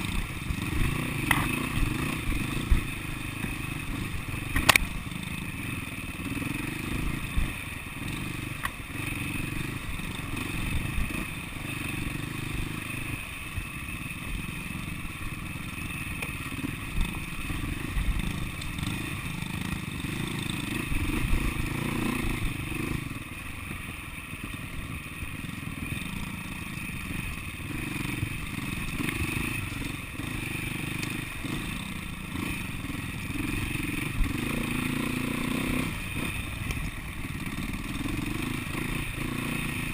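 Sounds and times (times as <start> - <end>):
motorcycle engine revving: 0.0 - 39.9
rattles and knocks from bike: 1.0 - 2.9, 4.4 - 5.0.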